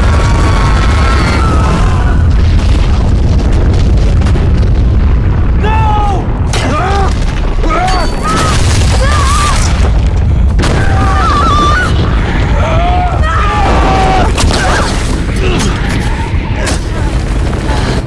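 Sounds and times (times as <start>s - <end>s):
people shouting and crying out: 0.0s - 3.0s, 10.6s - 17.3s
ice cracking and breaking: 6.5s - 18.0s.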